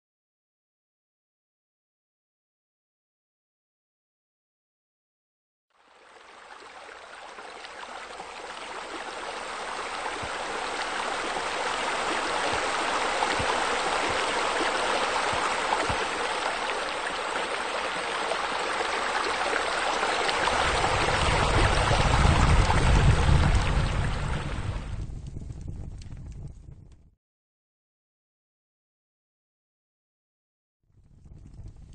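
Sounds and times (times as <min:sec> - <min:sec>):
running water: 0:05.8 - 0:25.0
low rumble: 0:20.4 - 0:27.1.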